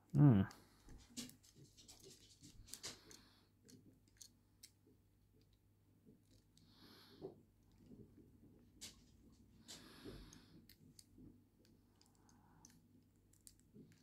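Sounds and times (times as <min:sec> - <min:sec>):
plastic toy parts clicking: 0:02.0 - 0:04.8, 0:10.6 - 0:14.0.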